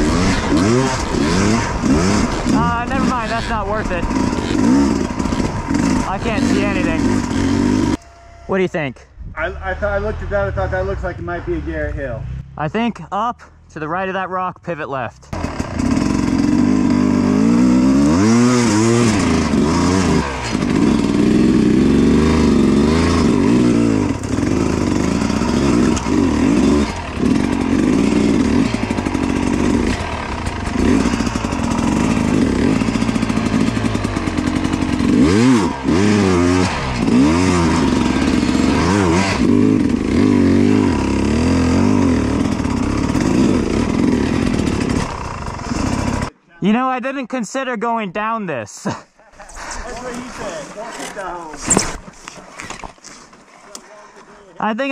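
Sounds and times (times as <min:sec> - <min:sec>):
dirt bike engine revving: 0:00.0 - 0:08.7, 0:15.2 - 0:46.4.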